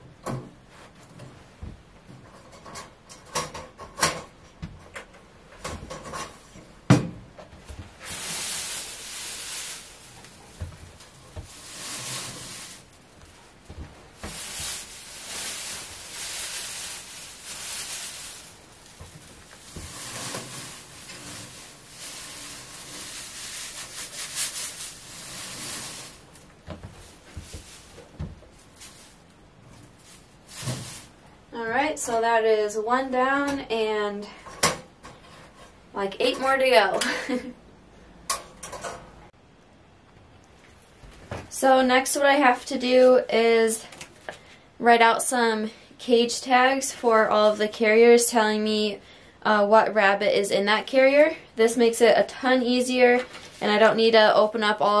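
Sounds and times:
dry hay rustling: 8.0 - 31.2.

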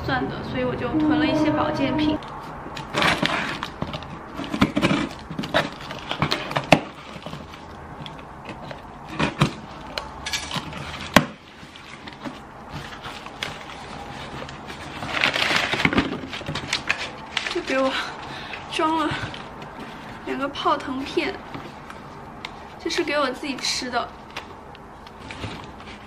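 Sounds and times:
clicks and scrapes of cardboard: 2.7 - 17.8.

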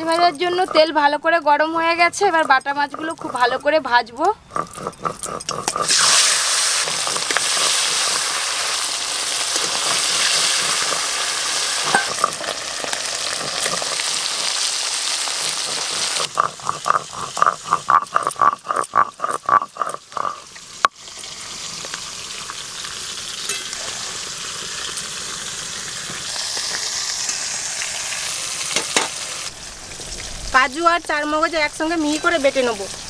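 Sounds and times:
stone pestle grinding on stone: 0.0 - 1.1, 2.0 - 8.2, 11.8 - 12.5, 13.2 - 14.5, 15.2 - 20.5
fish sizzling in hot oil: 5.7 - 33.0.

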